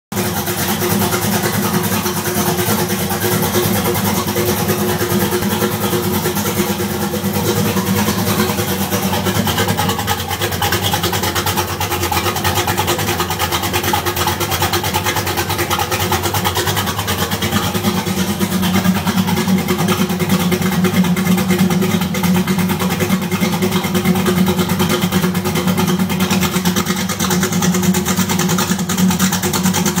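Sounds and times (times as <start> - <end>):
car engine running steadily: 0.1 - 30.0.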